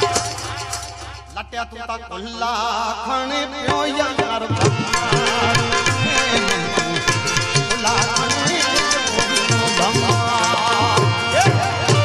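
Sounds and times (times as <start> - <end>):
folk song music: 0.0 - 12.0
hand drum beat: 4.5 - 12.0.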